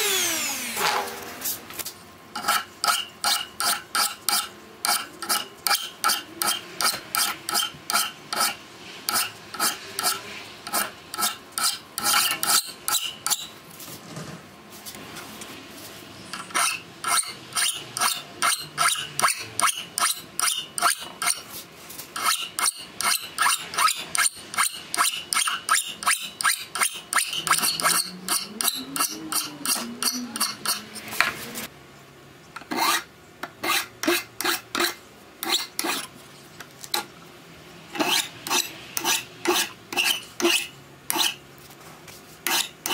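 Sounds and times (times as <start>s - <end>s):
hand file scraping steel: 2.4s - 13.5s, 16.3s - 21.6s, 22.2s - 31.3s, 32.7s - 36.1s, 37.9s - 41.4s, 42.4s - 42.9s.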